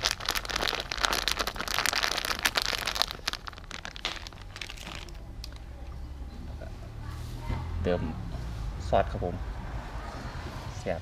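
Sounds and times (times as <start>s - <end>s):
plastic bag crinkling: 0.0s - 5.6s.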